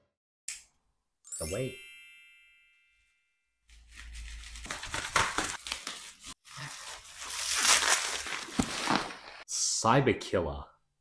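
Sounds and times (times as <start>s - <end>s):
bubble wrap crinkling: 3.7s - 9.4s.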